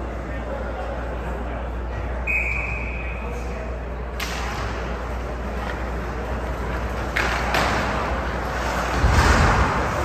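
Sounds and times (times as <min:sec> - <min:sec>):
scraping rush on ice: 0:05.9 - 0:10.0.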